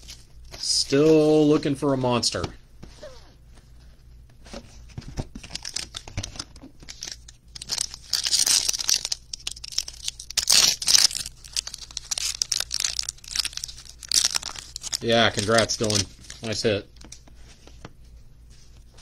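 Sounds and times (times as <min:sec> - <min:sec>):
foil wrapper crinkling: 0:05.3 - 0:17.2.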